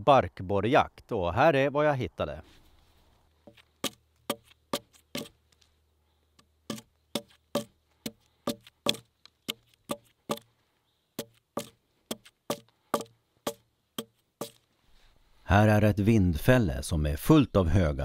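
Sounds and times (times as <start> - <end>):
axe striking tree trunk: 3.5 - 5.4, 6.7 - 10.5, 11.2 - 14.6.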